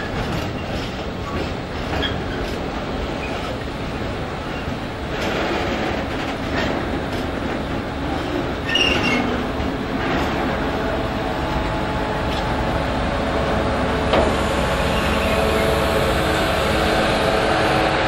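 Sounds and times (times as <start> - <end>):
wheels clicking over rail joints: 0.0 - 10.7
diesel locomotive running: 0.0 - 18.0
high wheel squeal: 8.6 - 9.4, 14.8 - 15.9.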